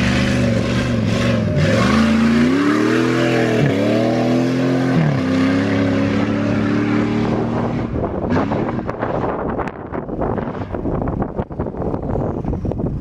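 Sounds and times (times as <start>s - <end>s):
engine revving hard: 0.0s - 9.7s
wind buffeting microphone: 6.3s - 13.0s.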